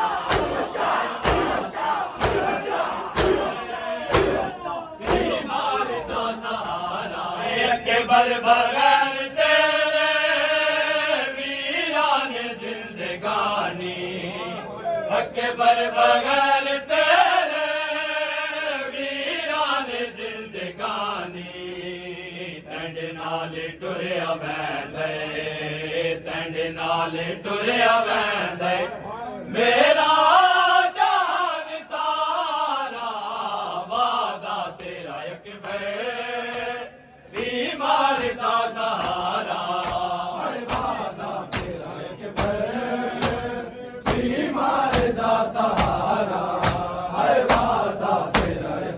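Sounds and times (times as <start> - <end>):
crowd chest-beating slaps: 0.0 - 7.0, 34.6 - 48.9
men chanting a lament: 0.0 - 48.9.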